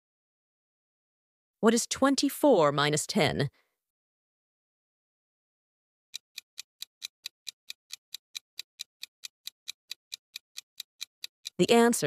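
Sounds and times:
fast clock-like ticking: 0:06.2 - 0:12.0.

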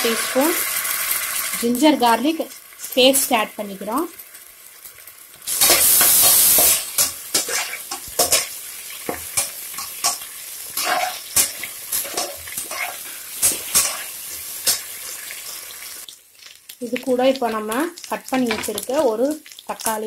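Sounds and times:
onions sizzling in oil: 0:00.0 - 0:20.0
metal spatula scraping pot: 0:05.6 - 0:15.4.

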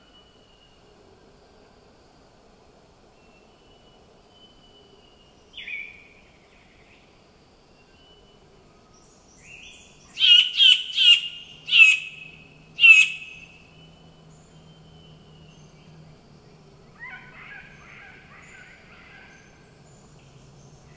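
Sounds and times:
bird loud sharp calls: 0:10.1 - 0:13.6
bird chattering notes: 0:12.8 - 0:13.4.

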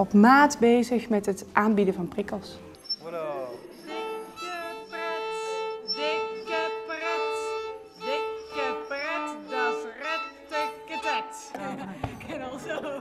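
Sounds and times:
violin sliding notes: 0:02.5 - 0:11.8
violin held bowed note: 0:03.8 - 0:11.5.

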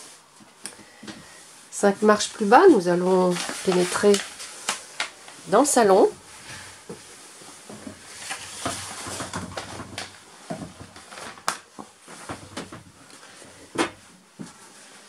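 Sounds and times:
rustling: 0:00.0 - 0:15.0
footsteps going down steps: 0:06.2 - 0:14.7.

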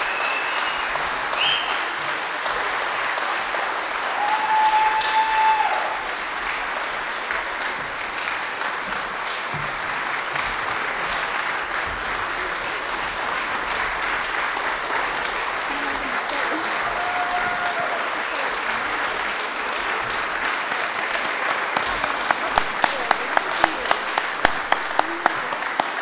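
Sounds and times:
audience applauding: 0:00.0 - 0:26.0.

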